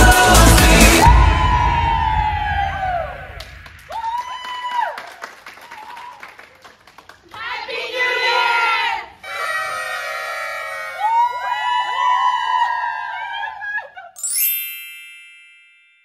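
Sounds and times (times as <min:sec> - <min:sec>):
people clapping: 0:03.4 - 0:08.5, 0:11.8 - 0:13.7
many voices calling out: 0:07.4 - 0:13.3.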